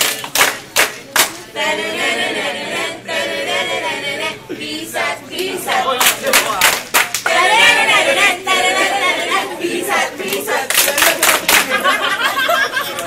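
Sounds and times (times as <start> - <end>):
sharp handclaps: 0.0 - 1.4, 6.0 - 7.4, 10.7 - 11.8
group chanting and shouting: 0.0 - 12.2.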